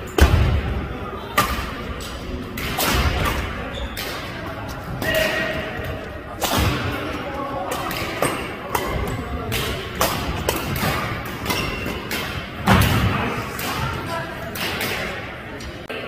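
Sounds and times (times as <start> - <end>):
racket hitting shuttlecock: 1.4 - 4.4, 7.7 - 15.2.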